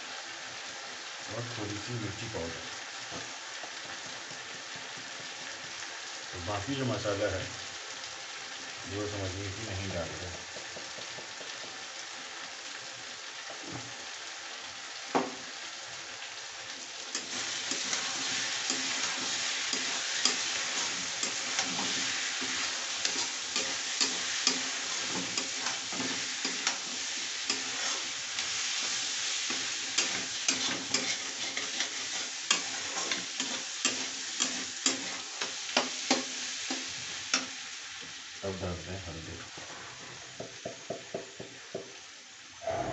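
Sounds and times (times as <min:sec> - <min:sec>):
vegetables sizzling in a pan: 0:00.0 - 0:42.9
metal spatula knocking on pan: 0:10.5 - 0:11.8, 0:40.4 - 0:41.9.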